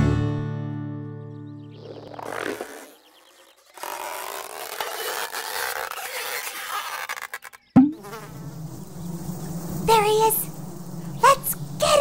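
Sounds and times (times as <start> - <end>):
cartoon noisy rustle: 2.0 - 12.0
cartoon pop with falling pitch: 7.8 - 8.1.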